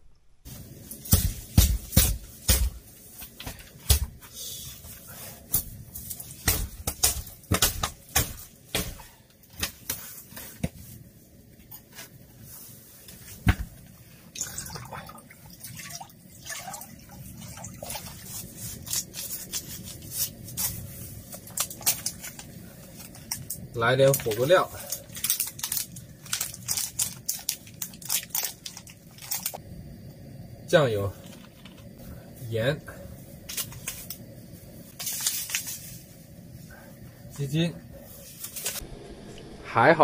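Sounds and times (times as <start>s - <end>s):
water pouring into a wok: 14.3s - 18.4s.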